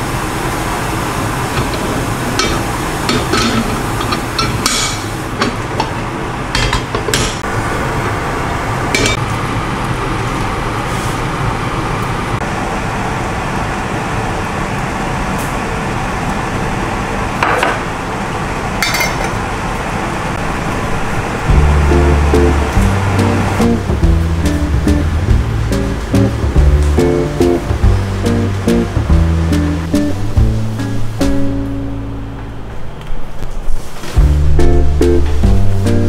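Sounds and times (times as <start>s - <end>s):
clinks of pan plate and utensils: 2.4s - 5.1s, 18.8s - 19.4s.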